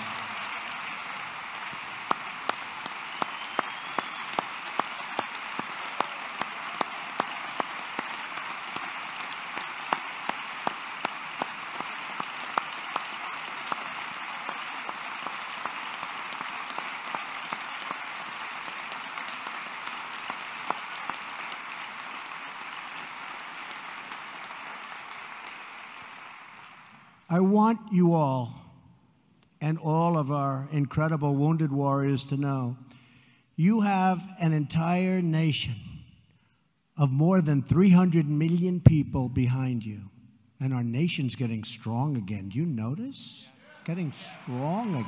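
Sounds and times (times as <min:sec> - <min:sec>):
hands clapping sharply close by: 0:00.0 - 0:27.1
audience applauding: 0:00.0 - 0:27.3, 0:43.6 - 0:45.0.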